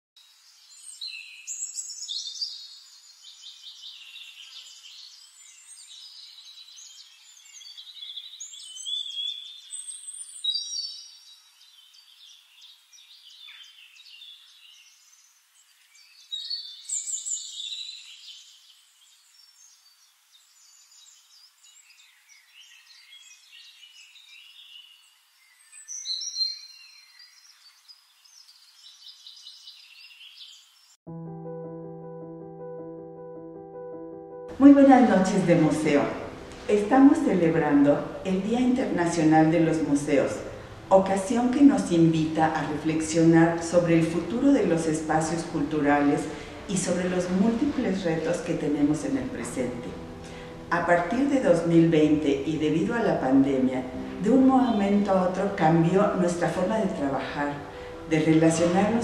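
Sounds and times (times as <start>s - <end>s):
songbirds singing: 0.3s - 31.0s.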